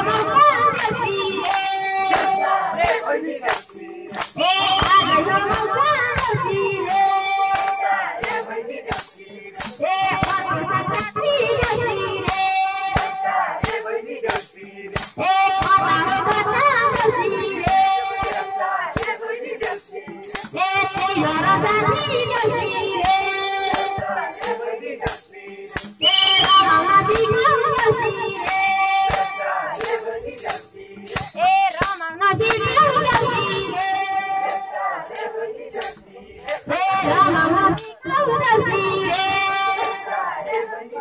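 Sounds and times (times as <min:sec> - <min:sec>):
person singing a melody: 0:00.0 - 0:08.8, 0:09.7 - 0:14.0, 0:15.2 - 0:25.0, 0:26.0 - 0:41.0
shaker percussion beat: 0:00.0 - 0:41.0.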